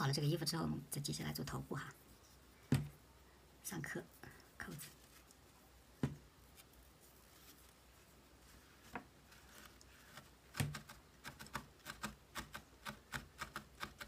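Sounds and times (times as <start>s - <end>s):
felting needle poking foam pad: 8.8s - 14.0s.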